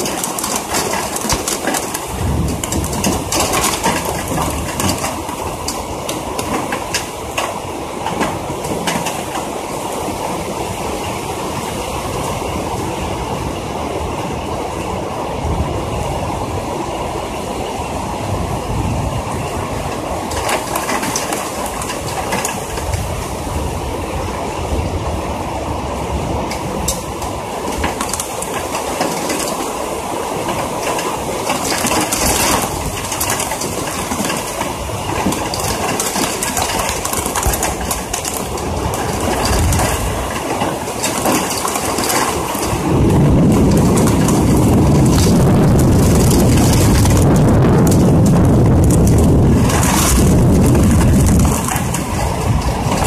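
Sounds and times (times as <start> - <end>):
rain drumming on metal: 0.0 - 16.9, 17.8 - 53.0
deep rumble: 42.6 - 53.0.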